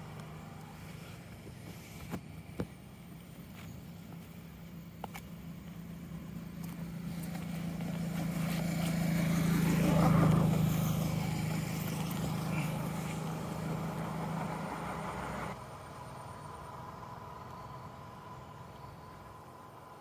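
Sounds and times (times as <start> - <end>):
vehicle engine passing by: 5.8 - 20.0.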